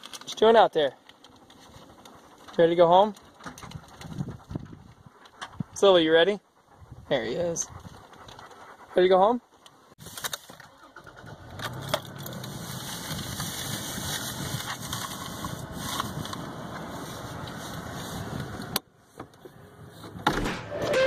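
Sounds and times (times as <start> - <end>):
pickup engine starting and idling: 10.6 - 13.3.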